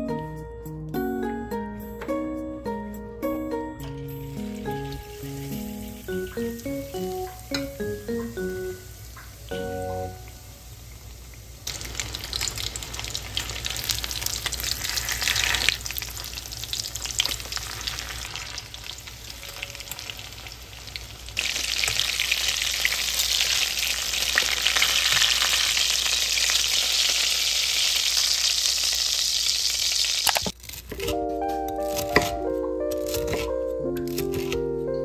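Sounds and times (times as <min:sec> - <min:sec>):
cutlets sizzling in hot oil: 0:04.3 - 0:30.6.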